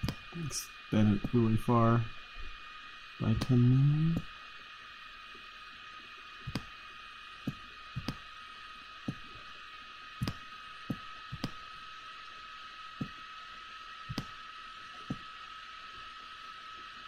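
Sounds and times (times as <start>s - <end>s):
faint high whine and hiss: 0.0s - 17.0s
computer mouse clicking: 6.5s - 6.7s, 7.4s - 8.2s, 10.2s - 11.6s, 14.1s - 14.4s.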